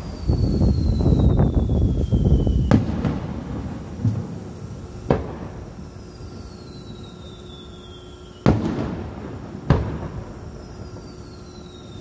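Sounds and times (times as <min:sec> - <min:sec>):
firework shells bursting: 0:00.0 - 0:12.0.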